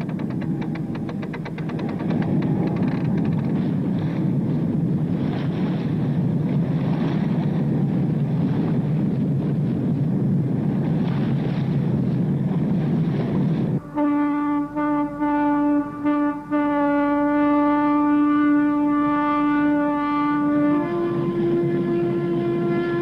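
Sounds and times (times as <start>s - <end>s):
deep horn blasts: 0.0s - 4.5s, 13.8s - 23.0s.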